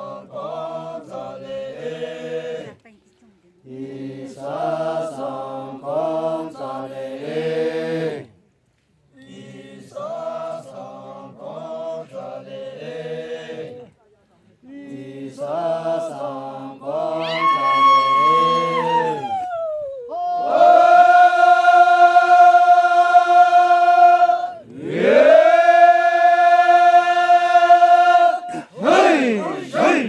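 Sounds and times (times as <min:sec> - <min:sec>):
men singing in harmony: 0:00.0 - 0:02.6, 0:03.8 - 0:08.2, 0:09.2 - 0:13.8, 0:14.8 - 0:17.2, 0:20.5 - 0:30.0.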